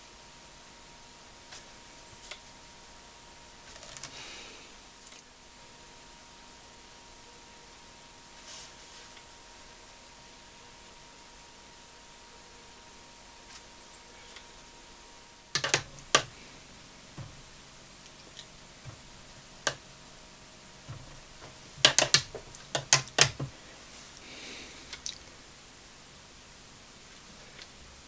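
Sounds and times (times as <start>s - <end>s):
painting tools clicking and tapping: 15.6s - 16.4s, 17.2s - 19.8s, 20.9s - 23.6s.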